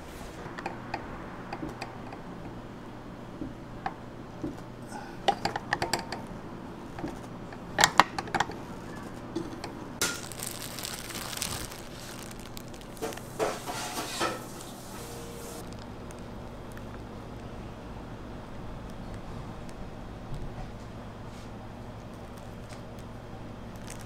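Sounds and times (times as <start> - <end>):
utensils and dishes clattering: 7.0 - 10.7, 12.5 - 15.6.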